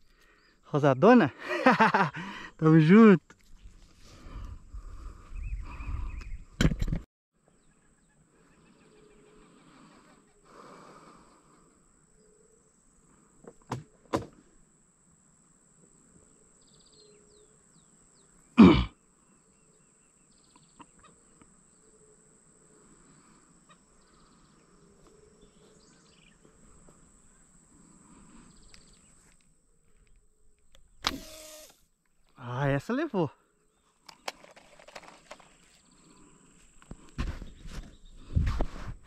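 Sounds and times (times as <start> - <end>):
birds: 0.0 - 6.8, 7.4 - 13.8, 16.1 - 30.3, 32.7 - 38.7
insects: 0.0 - 6.8, 7.4 - 39.0.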